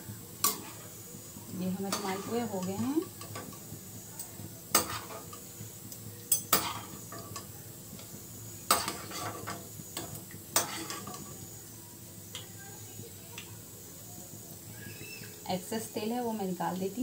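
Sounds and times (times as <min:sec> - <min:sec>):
faint sizzle of frying oil: 0:00.0 - 0:17.0
metal spatula clinking on pan: 0:04.7 - 0:05.3, 0:06.3 - 0:07.5, 0:08.7 - 0:11.2.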